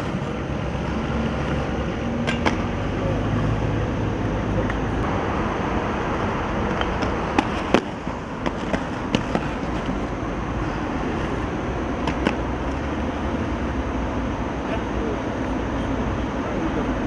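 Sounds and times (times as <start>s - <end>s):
skateboard clacking on ground: 2.2s - 2.7s, 6.7s - 10.1s, 12.0s - 12.4s
skateboard rolling on stone: 6.6s - 12.9s.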